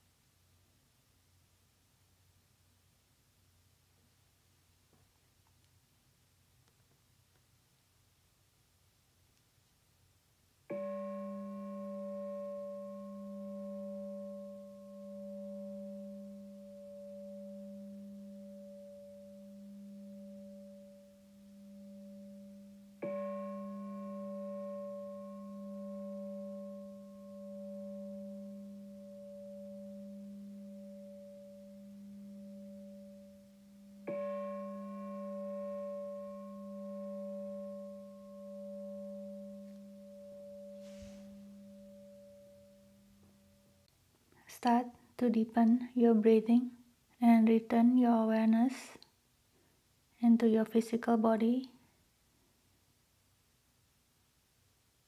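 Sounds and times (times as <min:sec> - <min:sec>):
singing bowl ringing: 0:10.7 - 0:43.9.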